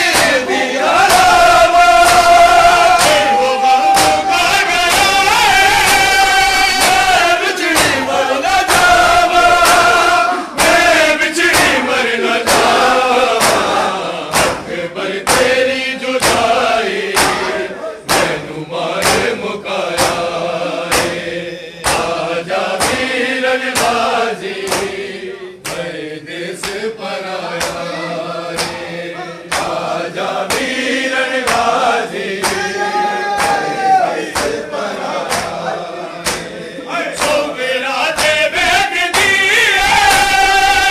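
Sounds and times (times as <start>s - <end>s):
bare-hand chest-beating: 0.0s - 26.0s, 27.5s - 35.6s, 36.2s - 36.6s, 37.2s - 37.5s, 38.1s - 40.9s
men chanting a lament in unison: 0.0s - 40.9s.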